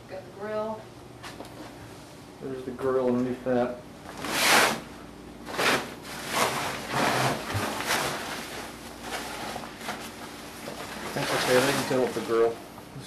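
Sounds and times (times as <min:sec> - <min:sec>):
grill cover rustling: 0:02.9 - 0:12.7.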